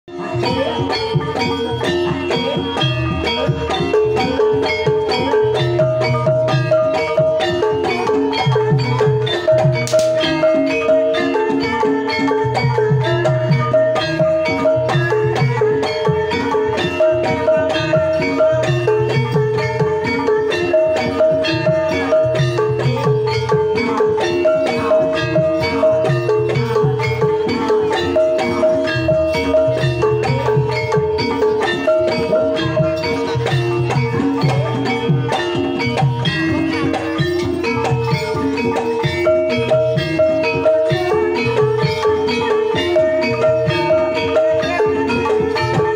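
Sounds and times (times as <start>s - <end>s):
gamelan playing: 0.1s - 45.9s
kettle gongs struck with sticks: 9.6s - 10.5s.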